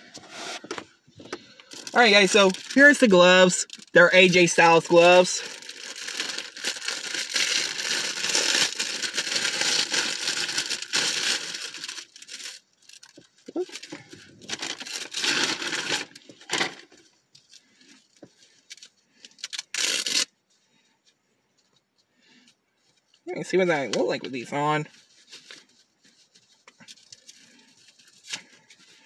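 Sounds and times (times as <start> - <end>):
plastic wrapping crinkling and tearing: 1.5 - 16.9, 17.5 - 20.3.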